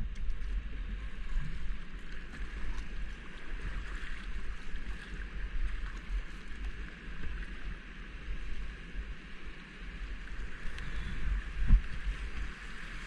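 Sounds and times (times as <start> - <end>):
paddle splashes: 0.0 - 7.6.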